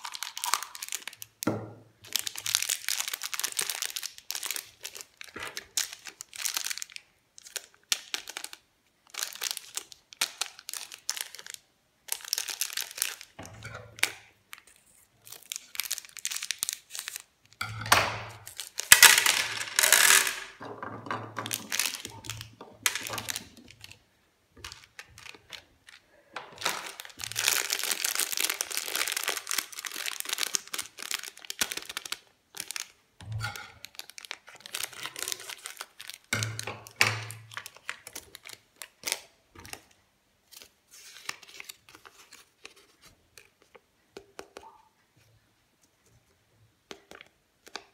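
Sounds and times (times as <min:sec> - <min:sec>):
plastic wrappers crinkling and tearing: 0:00.0 - 0:17.6, 0:18.3 - 0:20.3, 0:21.4 - 0:43.8
candies clattering onto a plate: 0:17.6 - 0:23.9, 0:33.2 - 0:38.1.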